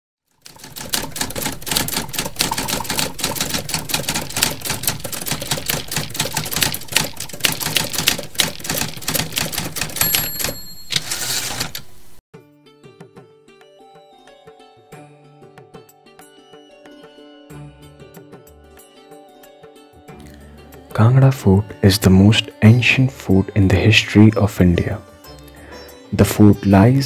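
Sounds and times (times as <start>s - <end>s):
typewriter keys clacking: 0.4s - 12.1s
typewriter carriage sliding: 0.6s - 12.1s
typewriter bell ding: 0.7s - 11.9s.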